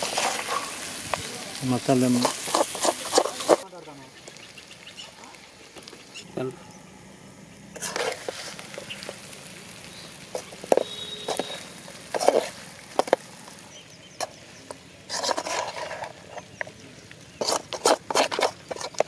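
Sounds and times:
metal spoon scraping a pan: 0:00.0 - 0:01.0, 0:01.6 - 0:03.6, 0:07.7 - 0:09.4, 0:10.2 - 0:13.6, 0:14.2 - 0:16.7, 0:17.4 - 0:19.0.

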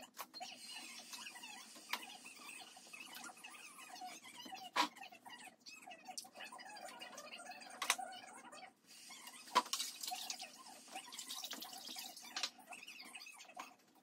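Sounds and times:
water dripping and splashing: 0:09.5 - 0:12.5.

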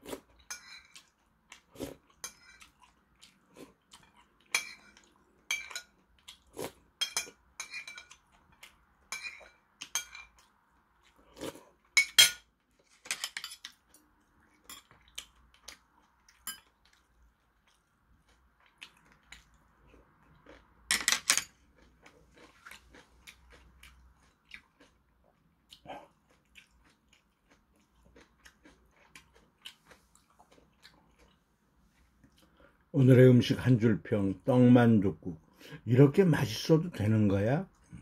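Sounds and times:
spoon clinking on porcelain bowl: 0:04.5 - 0:05.9, 0:09.1 - 0:10.4, 0:12.0 - 0:12.4.

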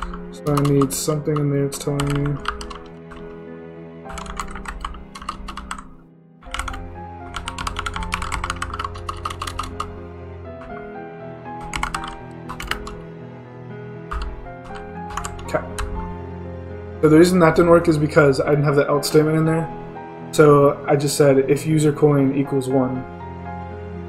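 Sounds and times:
computer keyboard typing: 0:00.0 - 0:03.4, 0:04.1 - 0:05.9, 0:06.5 - 0:10.0, 0:10.6 - 0:10.9, 0:11.6 - 0:13.0, 0:14.1 - 0:16.0
background music: 0:00.0 - 0:24.0.

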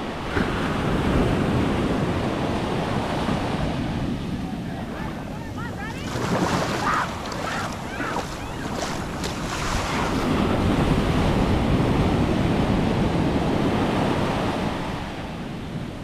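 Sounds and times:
waves breaking on sand: 0:00.0 - 0:16.0.

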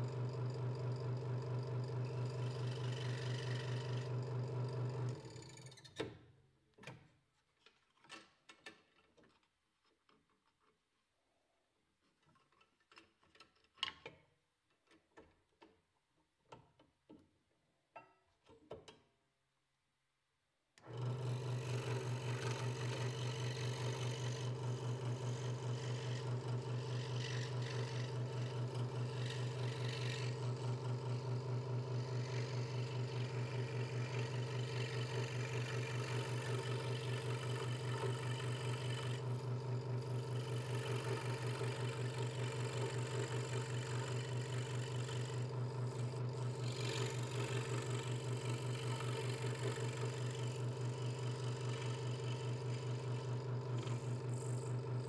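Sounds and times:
scroll saw cutting wood: 0:02.3 - 0:04.2, 0:20.8 - 0:55.0.

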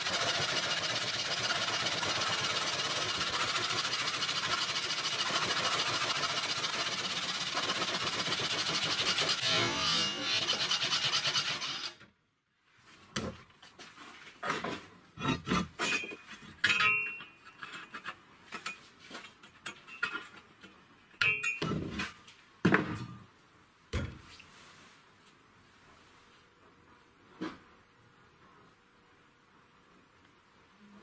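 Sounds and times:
motor saw rasping through steel: 0:00.0 - 0:12.0.

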